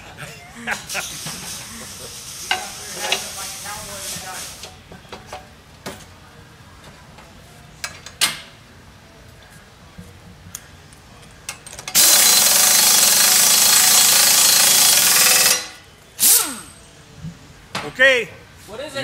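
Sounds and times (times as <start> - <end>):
pneumatic impact wrench hammering: 11.8 - 16.8.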